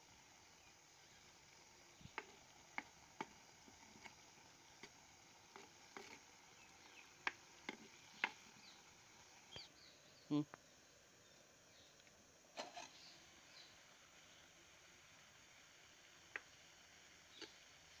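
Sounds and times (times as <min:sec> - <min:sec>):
ladle knocking and scraping clay pot: 0:02.0 - 0:08.5.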